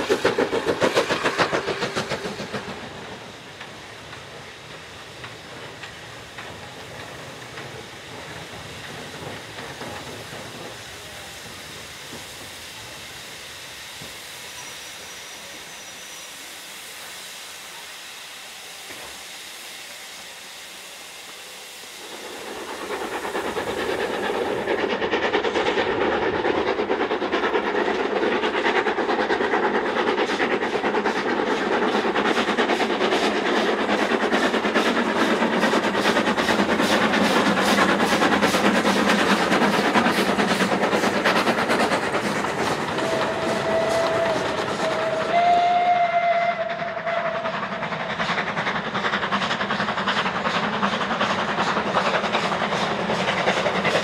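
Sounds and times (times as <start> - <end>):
steam hissing: 0.0 - 54.0
steam locomotive exhaust beat: 0.0 - 54.0.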